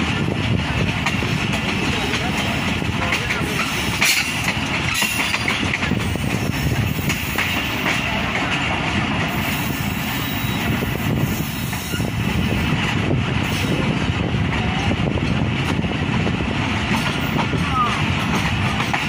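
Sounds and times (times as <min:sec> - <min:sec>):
wheels clicking over rail joints: 0:00.0 - 0:09.4, 0:15.2 - 0:19.0
train wheels rumbling on rails: 0:00.0 - 0:19.0.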